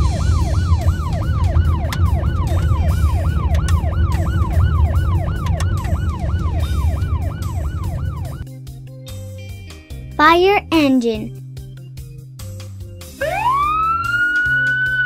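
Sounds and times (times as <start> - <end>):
police siren yelping: 0.0 - 8.4, 13.2 - 15.0.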